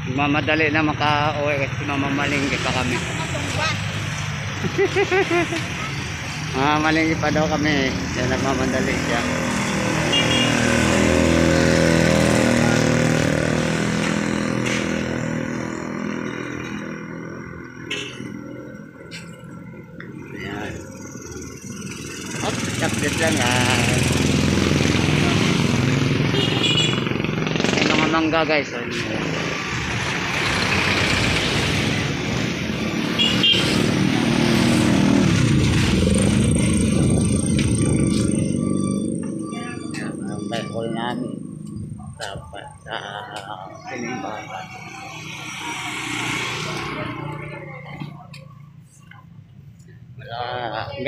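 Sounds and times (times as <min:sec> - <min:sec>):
street traffic: 0:00.0 - 0:51.0
motorcycle passing by: 0:01.8 - 0:19.1, 0:19.8 - 0:49.2
motorcycle engine running: 0:21.0 - 0:28.4.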